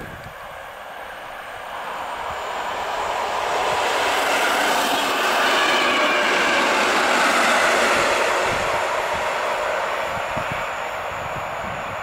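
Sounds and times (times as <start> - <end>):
train passing at speed: 0.0 - 12.0.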